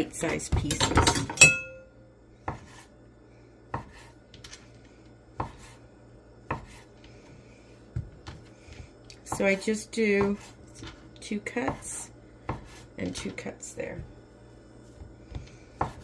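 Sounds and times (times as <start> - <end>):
sharp ringing clink: 1.4 - 2.0
knife chopping on wooden board: 2.4 - 2.8, 3.7 - 4.1, 5.4 - 5.8, 6.5 - 6.9, 9.2 - 10.6, 11.6 - 12.8, 15.3 - 16.0.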